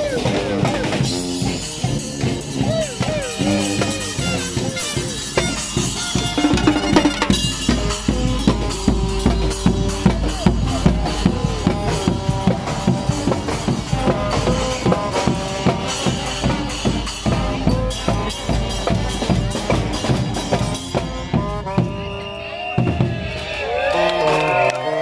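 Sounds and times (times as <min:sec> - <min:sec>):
bass drum: 0:00.0 - 0:22.1
cymbals: 0:00.0 - 0:23.8
brass band playing: 0:00.0 - 0:25.0
snare drum: 0:02.7 - 0:22.1.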